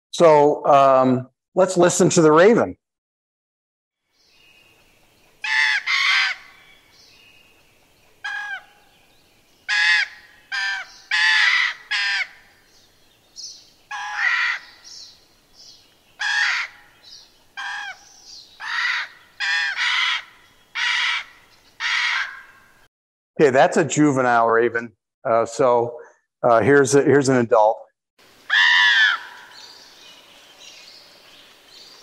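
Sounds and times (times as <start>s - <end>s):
raven harsh calls: 5.4s - 6.9s, 8.2s - 9.0s, 9.7s - 12.7s, 13.9s - 15.1s, 16.2s - 22.7s, 28.5s - 30.0s
fainter high-pitched calls: 5.4s - 7.1s, 8.2s - 9.0s, 9.6s - 12.6s, 13.4s - 22.6s, 28.4s - 30.2s.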